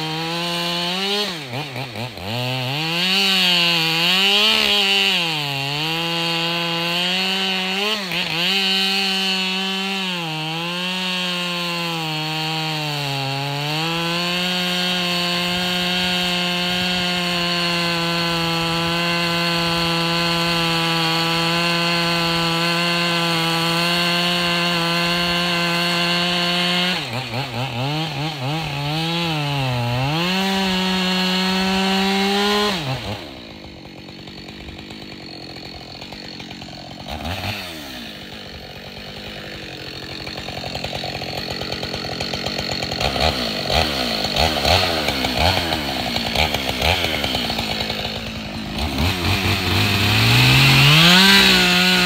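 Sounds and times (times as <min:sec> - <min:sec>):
chainsaw cutting into stump: 0:00.0 - 0:52.0.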